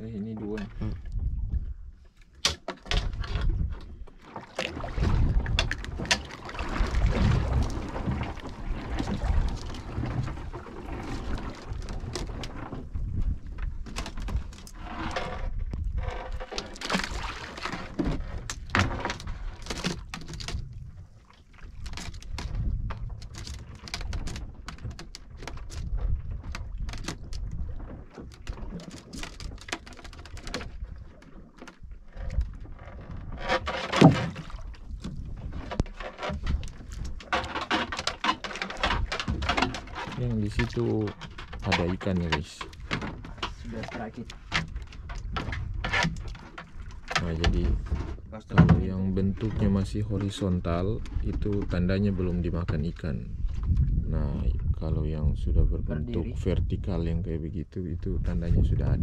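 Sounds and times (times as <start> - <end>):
wind buffeting microphone: 0.0 - 2.0, 2.9 - 4.0, 4.8 - 16.4, 18.0 - 24.7, 25.4 - 28.8, 34.6 - 37.3, 40.2 - 59.0
water lapping at a boat: 0.0 - 59.0.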